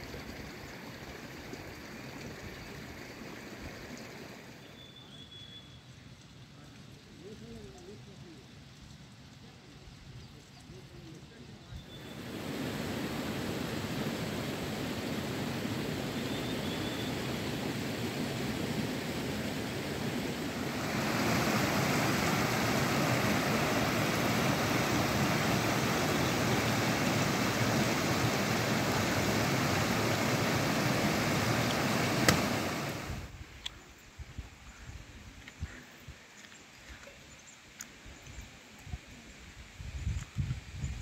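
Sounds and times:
outdoor rushing noise: 12.2 - 33.3
sharp click: 32.2 - 32.4.

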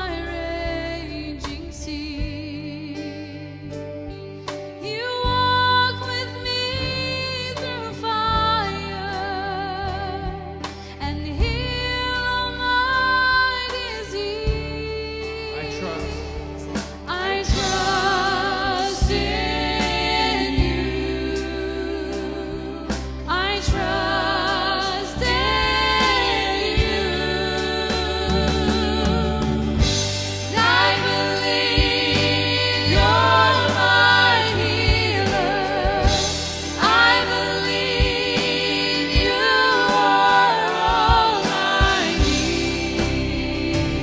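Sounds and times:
worship band playing: 0.0 - 44.0
voices singing with vibrato: 15.6 - 44.0.

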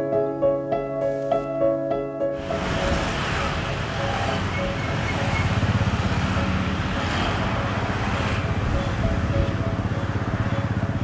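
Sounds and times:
background music: 0.0 - 11.0
vehicle engine rumbling: 2.4 - 11.0.

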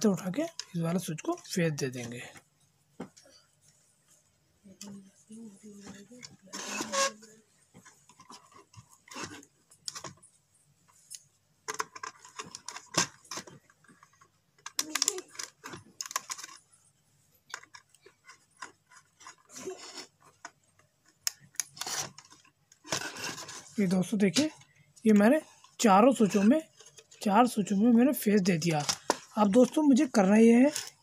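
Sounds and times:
wire clicking and scraping: 10.9 - 16.8, 17.5 - 27.7.

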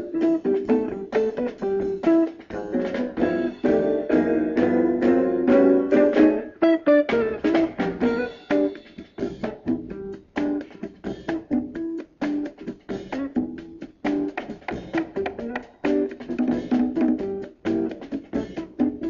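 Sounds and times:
plucked guitar notes: 0.0 - 8.9
guitar chords: 0.0 - 12.4.

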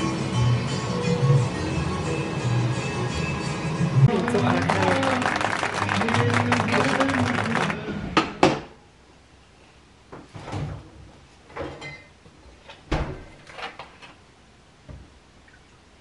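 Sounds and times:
refrigerator door opening and shutting: 10.2 - 14.2.

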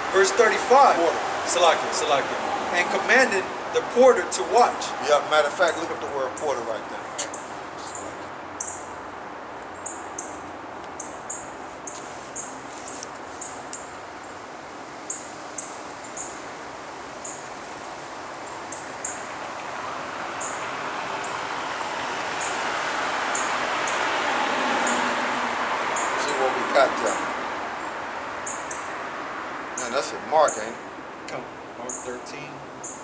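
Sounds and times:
car approaching: 0.0 - 9.0, 17.2 - 31.0
street traffic: 0.0 - 33.0.

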